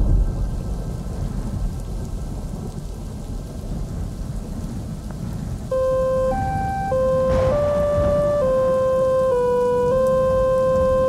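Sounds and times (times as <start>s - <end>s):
rain: 0.0s - 11.0s
rolling thunder: 0.0s - 11.0s
faint sustained tones: 5.7s - 11.0s
synth melody: 5.7s - 11.0s.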